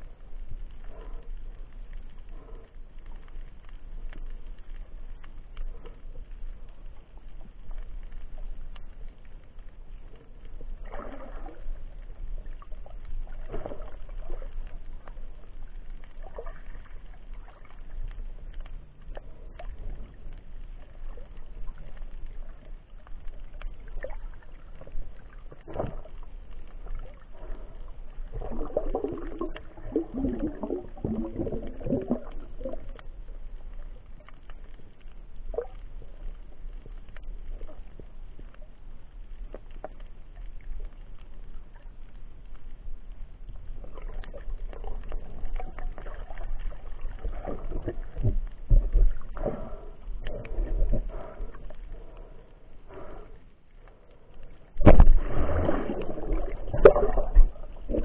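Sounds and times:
small underwater clicks and knocks: 0.0 - 58.0
underwater rumble of moving water: 0.0 - 58.0
water gurgling: 10.4 - 34.3, 43.7 - 53.2, 54.6 - 58.0.

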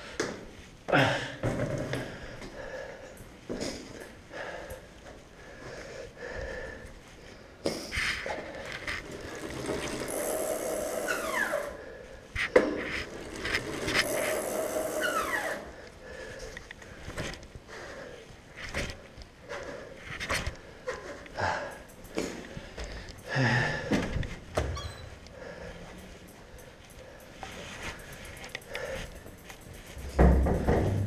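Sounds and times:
bicycle clicks and knocks: 7.6 - 11.7, 12.4 - 17.5, 20.2 - 24.8, 25.8 - 31.0.

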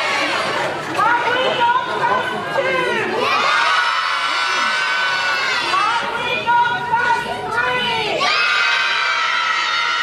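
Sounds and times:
children cheering and shouting: 3.2 - 6.0, 8.2 - 10.0.

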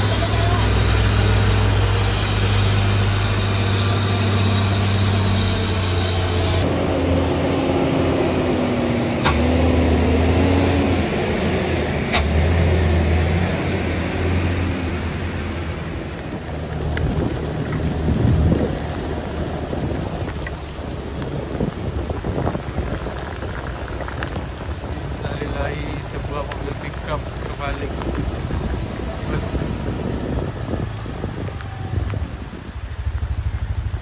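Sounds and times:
diesel truck engines: 0.0 - 34.0
rain on road: 0.0 - 34.0.

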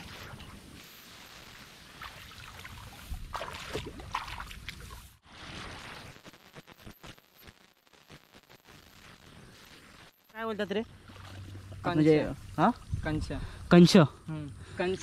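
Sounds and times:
muddy water splashing: 1.6 - 6.2, 10.9 - 12.9.

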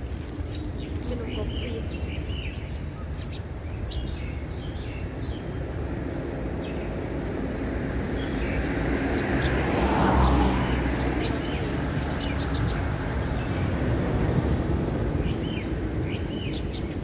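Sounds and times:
street traffic rumble: 0.0 - 17.0
car passing by: 6.0 - 15.6.

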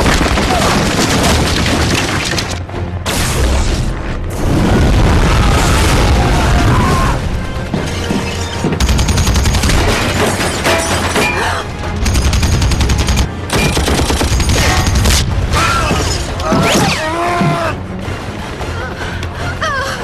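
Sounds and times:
film score music: 0.0 - 20.0
machine gun firing bursts: 8.8 - 10.2, 12.0 - 15.2.

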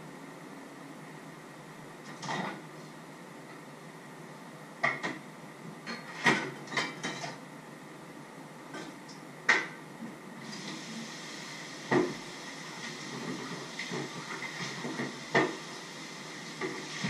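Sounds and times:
dishes and pans clinking: 2.1 - 2.6, 5.8 - 7.4.

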